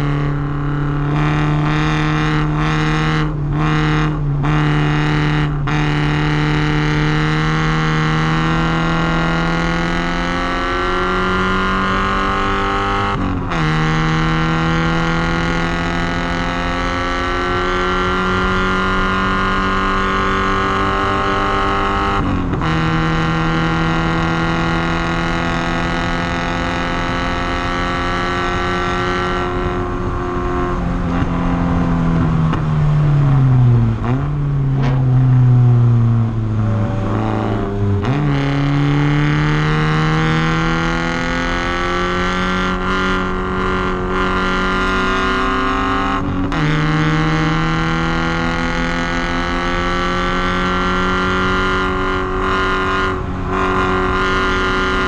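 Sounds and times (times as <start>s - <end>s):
car engine accelerating hard: 0.0s - 55.0s
engine throttle blips: 27.6s - 50.8s.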